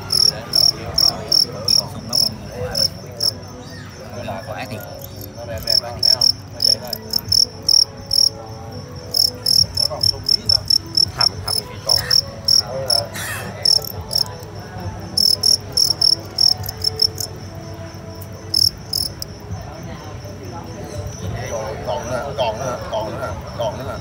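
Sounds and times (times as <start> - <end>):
crickets chirping: 0.0 - 24.0.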